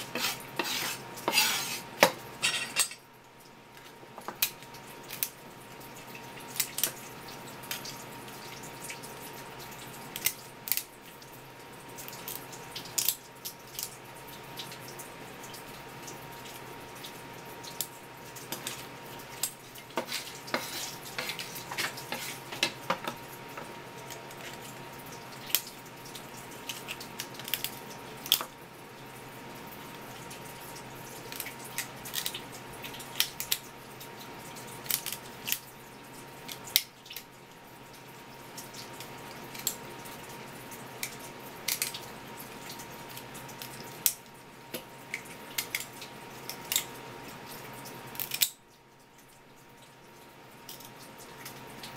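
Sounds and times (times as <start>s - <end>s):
shears snipping crab shells: 6.5s - 7.0s, 10.1s - 10.9s, 26.6s - 28.5s, 31.3s - 32.4s, 34.8s - 35.7s, 41.0s - 42.0s, 48.1s - 48.6s
tap water running: 11.2s - 28.3s.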